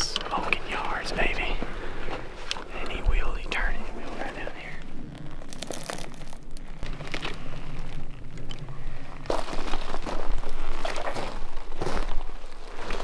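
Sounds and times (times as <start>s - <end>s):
footsteps crunching through dry twigs: 4.8s - 8.1s, 9.1s - 13.0s.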